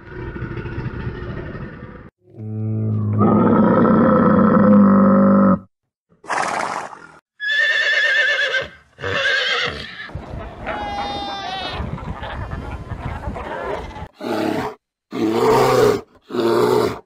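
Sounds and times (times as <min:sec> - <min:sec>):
horse neighing: 0:07.4 - 0:10.1.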